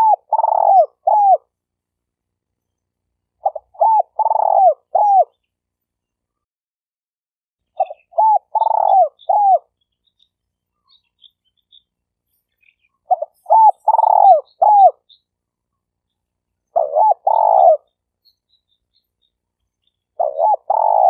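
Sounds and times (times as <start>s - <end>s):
dove cooing: 0.0s - 1.5s, 3.4s - 5.4s, 7.8s - 9.7s, 13.0s - 15.1s, 16.7s - 17.9s, 20.2s - 21.0s.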